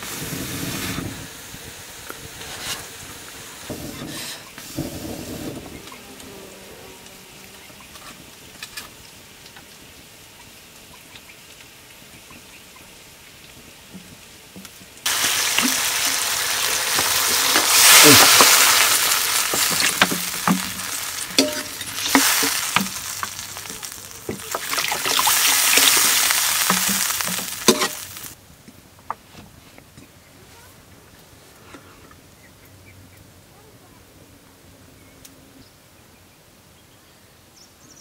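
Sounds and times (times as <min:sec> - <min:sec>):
curry sizzling in hot oil: 0:10.5 - 0:28.4
utensil scraping a pan: 0:15.5 - 0:28.3.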